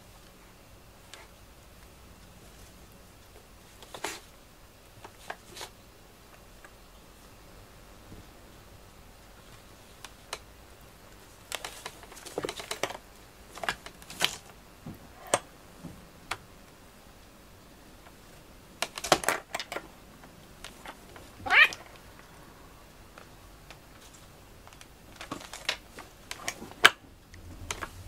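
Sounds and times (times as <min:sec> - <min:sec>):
cat call rising in pitch: 0:21.4 - 0:21.8.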